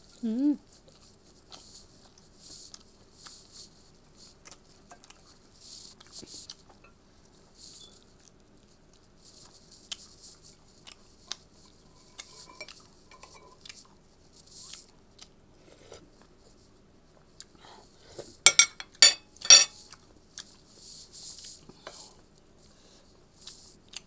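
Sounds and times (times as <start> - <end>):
chewing and mouth smacks: 4.3 - 5.3
spoon clinking on a dish: 12.1 - 13.6, 18.5 - 19.7.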